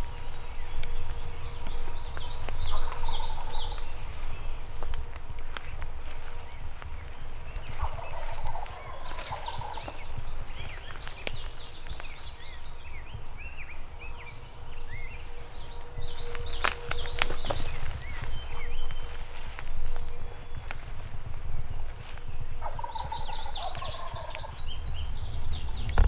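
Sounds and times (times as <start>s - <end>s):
songbirds chirping: 0.0s - 26.0s
turkey gobbling: 7.7s - 10.0s, 22.6s - 24.6s.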